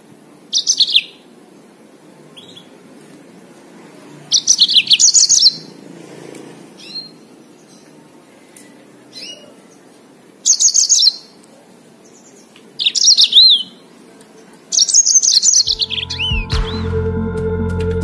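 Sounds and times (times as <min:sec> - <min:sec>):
canary singing fast high trills: 0:00.5 - 0:01.2, 0:04.3 - 0:05.8, 0:06.8 - 0:07.9, 0:10.4 - 0:11.3, 0:12.8 - 0:13.8, 0:14.7 - 0:16.9.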